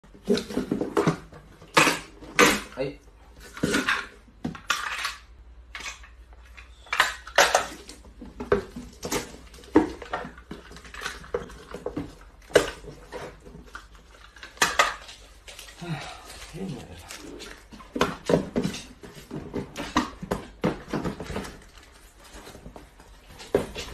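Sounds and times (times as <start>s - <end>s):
cardboard boxes knocking: 8.0s - 13.4s, 17.7s - 23.9s.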